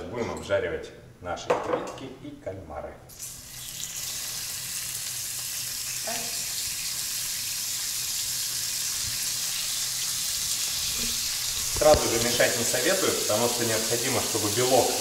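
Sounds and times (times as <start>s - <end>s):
seafood sizzling in hot oil: 3.1s - 15.0s.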